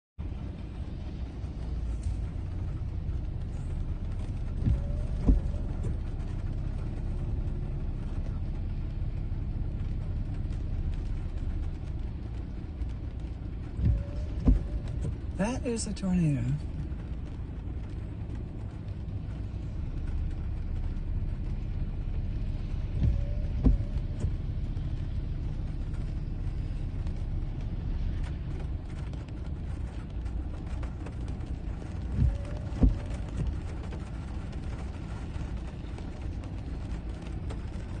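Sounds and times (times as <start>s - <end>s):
storm wind and heavy rain: 0.2s - 38.0s
dull thumps: 4.5s - 6.0s, 13.8s - 15.2s, 22.9s - 24.4s.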